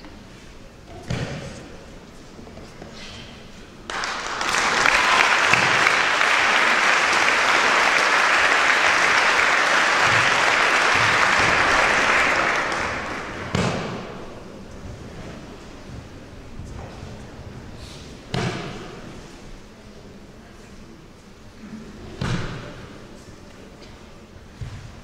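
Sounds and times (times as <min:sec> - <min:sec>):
audience applauding: 0:03.9 - 0:13.6
thud: 0:13.4 - 0:14.2.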